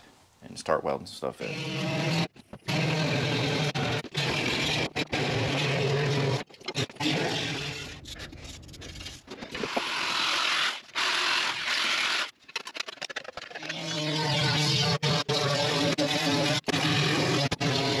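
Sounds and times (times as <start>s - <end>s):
cutting tool cutting sheet steel: 1.4s - 7.8s.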